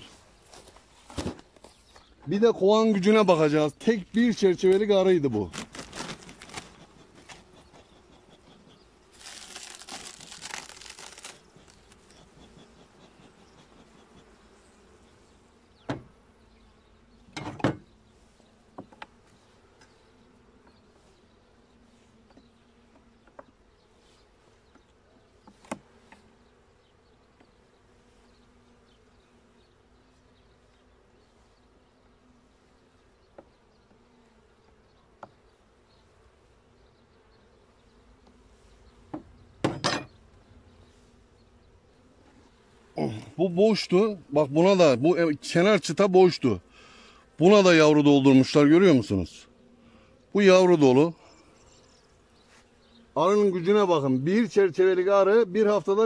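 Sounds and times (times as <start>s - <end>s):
honeybees buzzing: 0.0s - 56.0s
knocks of wooden hive frames: 1.0s - 2.4s, 4.2s - 14.4s, 15.8s - 16.2s, 17.3s - 18.0s, 39.0s - 40.4s.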